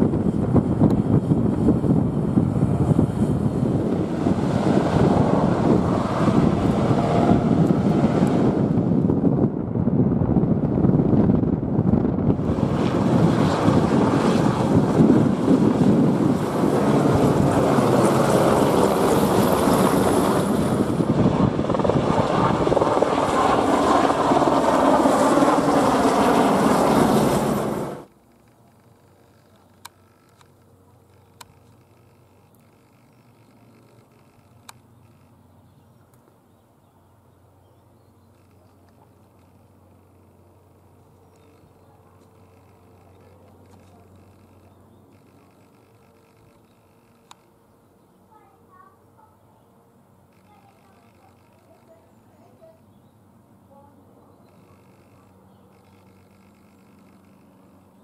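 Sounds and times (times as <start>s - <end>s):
wind buffeting microphone: 0.0s - 28.0s
helicopter flying overhead: 0.0s - 58.0s.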